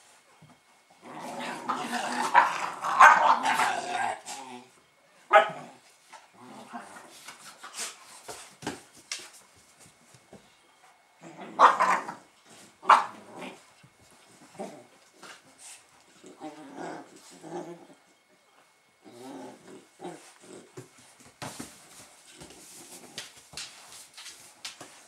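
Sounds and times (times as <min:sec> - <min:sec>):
puppies growling and scuffling: 0:00.1 - 0:25.0
dog barks: 0:05.3 - 0:05.7.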